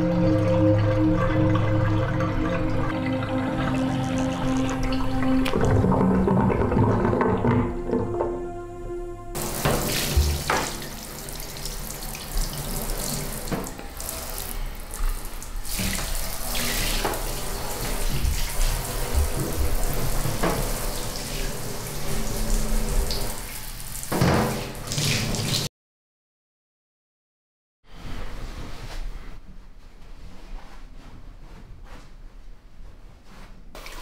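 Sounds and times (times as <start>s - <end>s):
faint music: 0.0s - 23.4s
water running and splashing: 9.4s - 25.7s.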